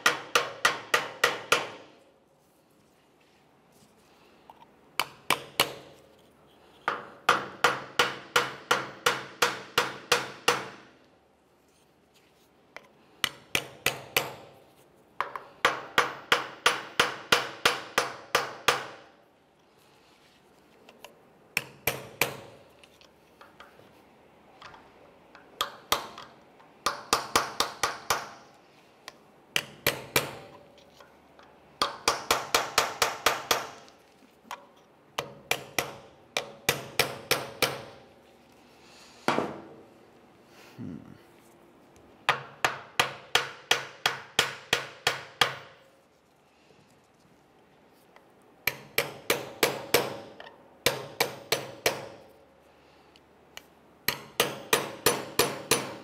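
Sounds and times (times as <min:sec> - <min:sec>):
hammer tapping punch on metal: 0:00.0 - 0:01.8, 0:05.0 - 0:06.0, 0:06.9 - 0:10.8, 0:13.2 - 0:14.6, 0:21.6 - 0:22.6, 0:25.4 - 0:28.4, 0:29.1 - 0:30.6, 0:31.8 - 0:33.8, 0:35.2 - 0:38.0, 0:48.6 - 0:52.2, 0:54.0 - 0:56.0.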